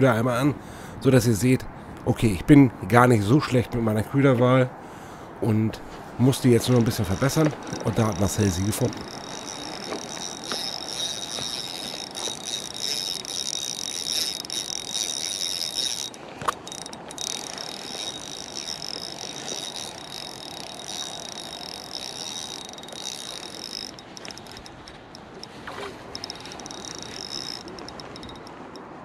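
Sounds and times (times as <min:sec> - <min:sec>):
fishing reel ratcheting: 0:06.6 - 0:29.0.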